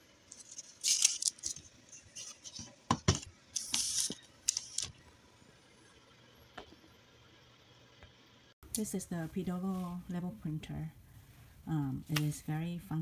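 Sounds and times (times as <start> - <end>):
packaging rustling: 0.3 - 2.7.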